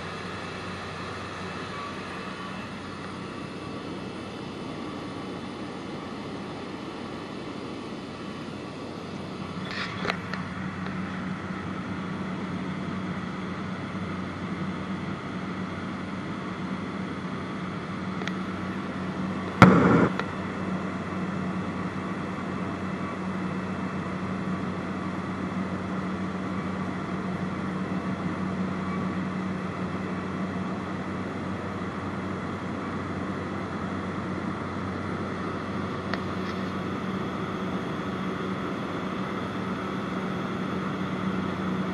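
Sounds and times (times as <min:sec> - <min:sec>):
propeller plane engine drone: 0:00.0 - 0:41.9
sharp knock: 0:19.6 - 0:20.2.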